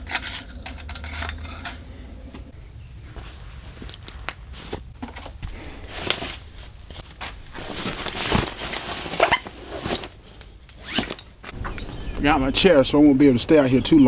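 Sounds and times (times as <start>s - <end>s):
fabric rustling and scraping: 4.5s - 11.2s.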